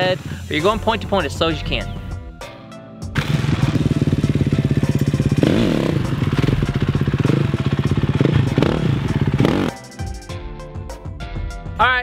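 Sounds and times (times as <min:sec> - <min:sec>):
dirt bike engine revving: 0:03.2 - 0:10.0.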